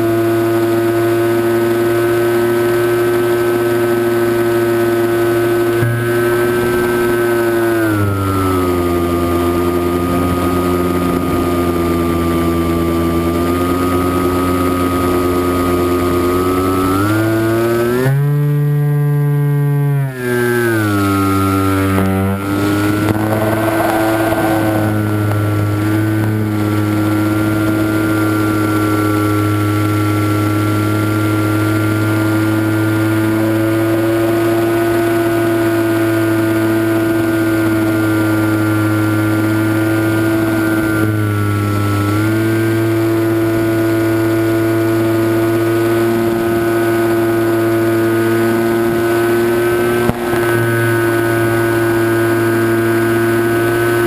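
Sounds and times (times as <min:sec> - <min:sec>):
model aircraft motor and propeller drone: 0:00.0 - 0:54.0.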